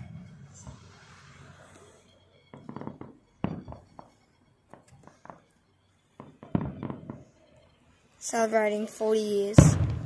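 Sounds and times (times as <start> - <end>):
distant fireworks bangs: 0.0 - 1.3, 1.9 - 7.6, 9.5 - 10.0.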